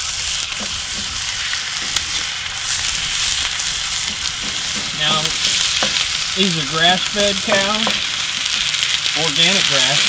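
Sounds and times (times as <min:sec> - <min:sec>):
spatula scraping a pan: 0:00.0 - 0:06.4
meat sizzling in a skillet: 0:00.0 - 0:10.0.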